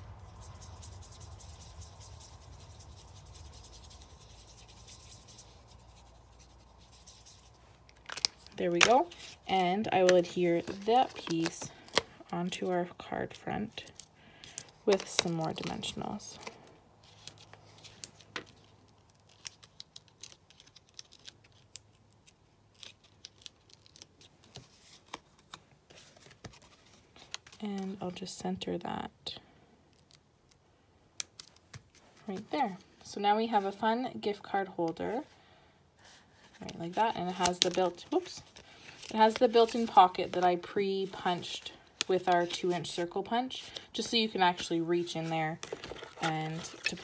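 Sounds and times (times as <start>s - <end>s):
soft paper rustling: 0.0s - 28.3s, 31.3s - 33.9s, 36.0s - 47.0s
brush pen rubbing on cardstock: 0.2s - 7.5s.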